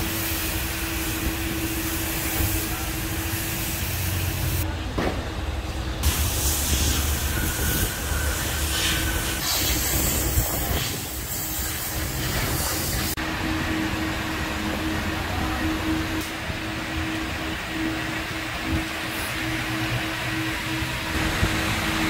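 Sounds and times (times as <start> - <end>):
hiss: 0.0 - 4.6, 6.0 - 13.2.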